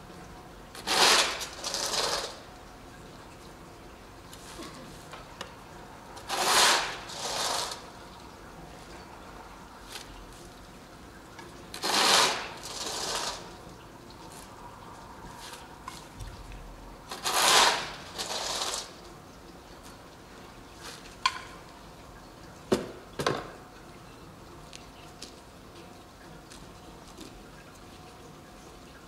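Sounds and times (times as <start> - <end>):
plastic shovel scraping asphalt: 0.8 - 2.4, 6.2 - 7.8, 11.8 - 13.5, 17.1 - 18.9.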